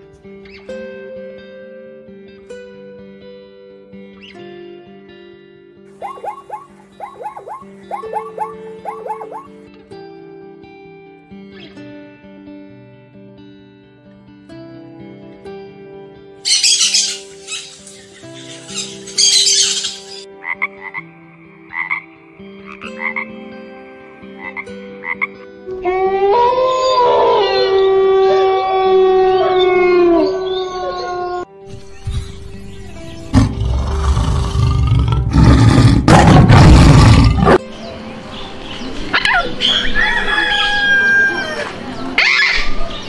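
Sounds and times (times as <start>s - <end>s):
bird calls and whistles: 6.0s - 9.5s, 16.5s - 20.2s
frog croaking: 6.0s - 9.5s, 20.3s - 23.4s, 24.4s - 25.4s
loud animal call: 6.0s - 9.5s, 25.9s - 31.2s.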